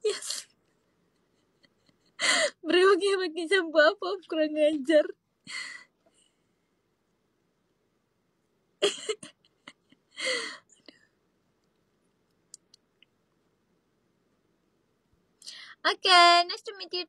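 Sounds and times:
woman's stifled breathy laughter: 1.2s - 2.6s
faint clicks: 11.6s - 13.2s.

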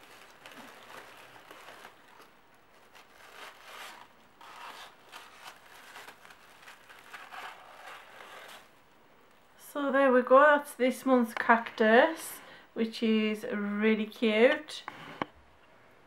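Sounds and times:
tissue paper rustling: 0.0s - 8.7s.

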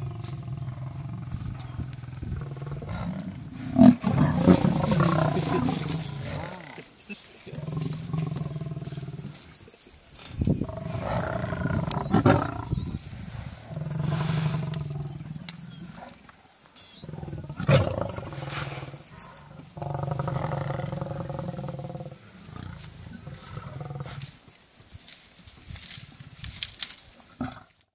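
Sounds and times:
lions growling: 0.0s - 9.6s, 10.4s - 24.4s.

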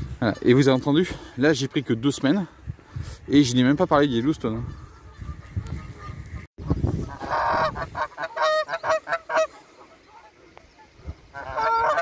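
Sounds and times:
geese honking: 4.0s - 12.0s.

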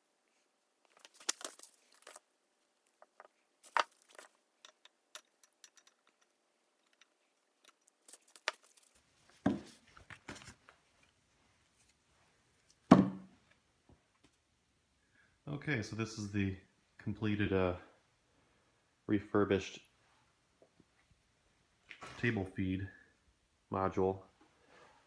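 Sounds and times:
metal parts clicking and clinking: 3.0s - 9.0s.

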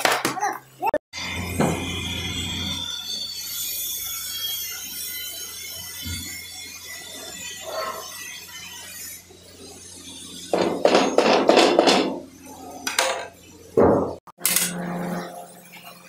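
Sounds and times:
metal utensils clattering on pans: 10.5s - 13.4s.

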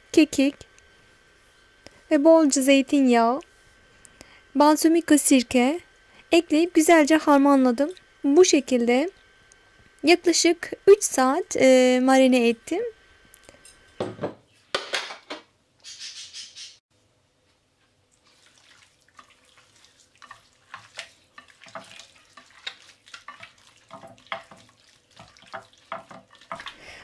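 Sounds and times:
hand squelching raw meat in marinade: 18.2s - 26.8s.

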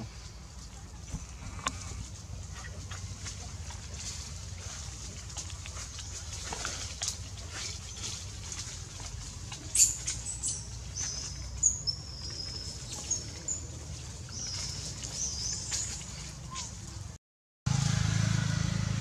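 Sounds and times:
twigs and leaves crackling: 0.2s - 17.1s
animal chirps and squeaks: 9.6s - 13.7s, 14.3s - 16.8s.

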